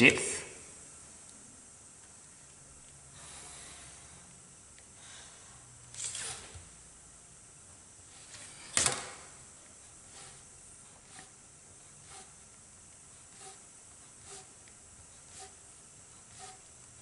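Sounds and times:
plastic ruler sliding: 6.0s - 6.6s, 16.3s - 16.7s
pencil scratching on paper: 10.1s - 11.4s, 12.0s - 12.4s, 13.2s - 14.6s, 15.2s - 15.6s, 16.2s - 16.7s.

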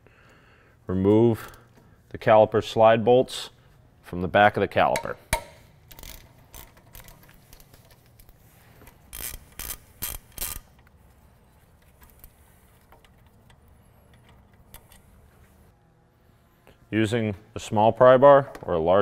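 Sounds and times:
ratchet clicking: 5.3s - 7.7s, 8.9s - 10.8s.

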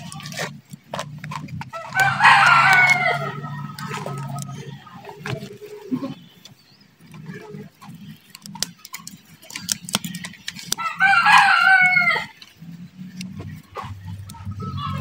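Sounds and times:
rooster crowing: 1.7s - 4.6s, 10.8s - 12.4s, 14.5s - 15.0s
scissors snipping: 8.2s - 11.5s.

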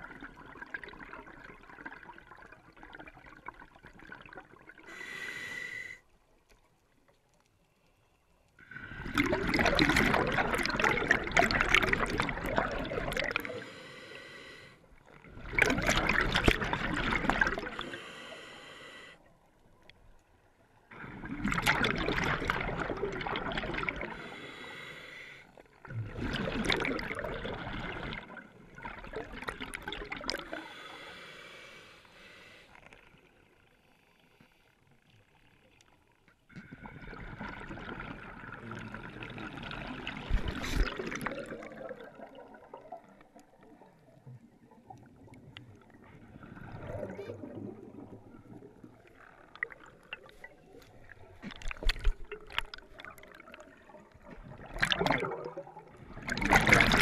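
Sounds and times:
exhaled bubbles underwater: 0.0s - 4.9s, 8.6s - 13.7s, 15.0s - 18.0s, 20.8s - 24.5s, 25.7s - 30.9s, 36.5s - 57.0s.

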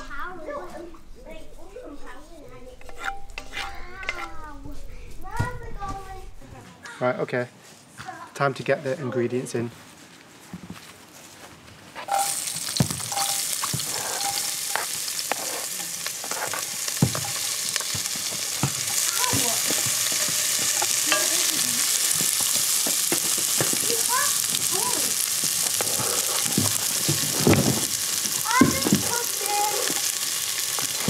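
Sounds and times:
wooden spoon scraping pot: 2.7s - 4.6s, 12.1s - 31.0s
onions sizzling in butter: 12.0s - 31.0s.

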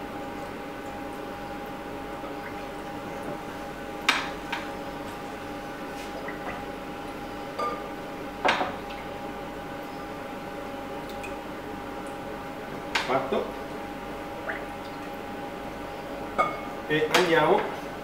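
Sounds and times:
water trickling: 0.3s - 3.4s, 10.9s - 12.3s.

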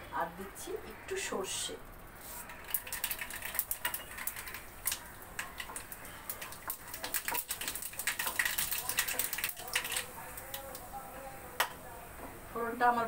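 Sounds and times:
seeds popping in hot oil: 2.2s - 11.8s.

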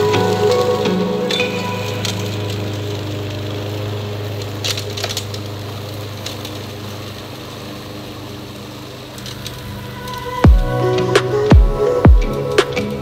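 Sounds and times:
lawn mower running: 0.0s - 13.0s
leaves and twigs crackling: 0.0s - 13.0s.

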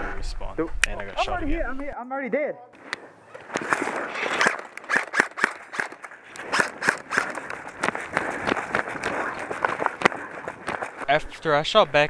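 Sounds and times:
quick footsteps on grass: 5.5s - 12.0s.

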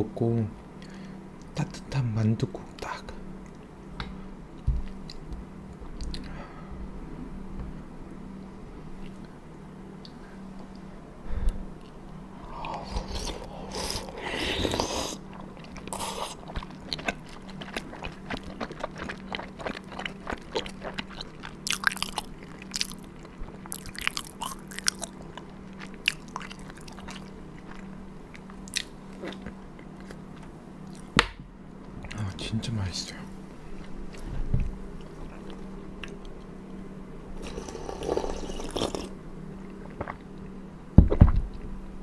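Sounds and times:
slurping broth: 12.5s - 16.5s, 37.4s - 39.1s
wet chewing and mouth clicks: 12.7s - 31.1s.

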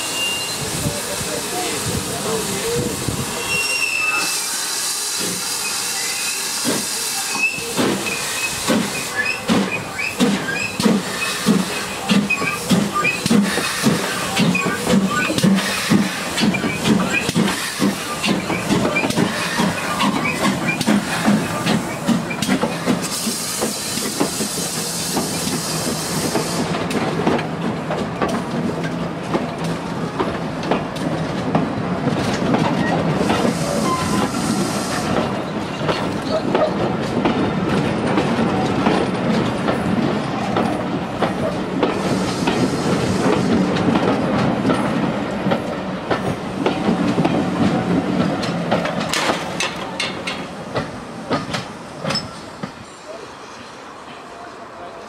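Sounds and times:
steam hissing: 0.0s - 27.0s, 32.8s - 36.2s, 40.8s - 45.0s
steam locomotive exhaust chuffs: 4.1s - 27.0s
train wheels clattering over rail joints: 6.6s - 52.8s.

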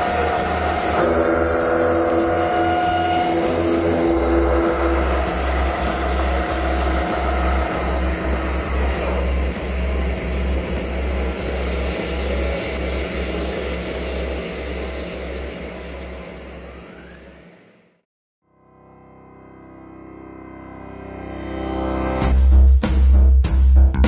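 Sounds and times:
face mill cutting steel: 0.0s - 17.6s
machining whine: 0.0s - 18.0s.

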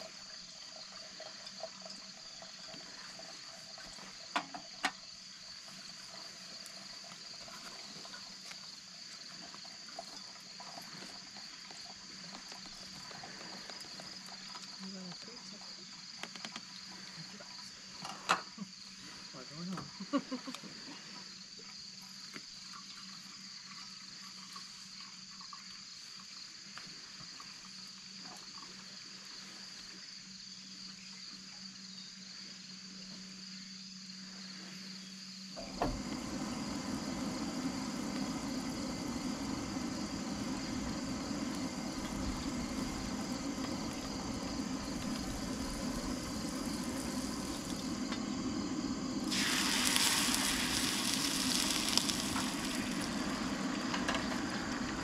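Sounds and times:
crickets chirping: 0.0s - 55.0s
eggs sizzling in a skillet: 35.6s - 55.0s
steady rushing noise: 35.6s - 55.0s.

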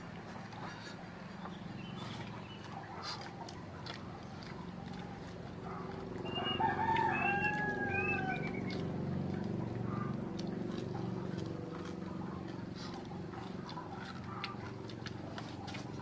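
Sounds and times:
rooster crowing: 6.2s - 8.7s.

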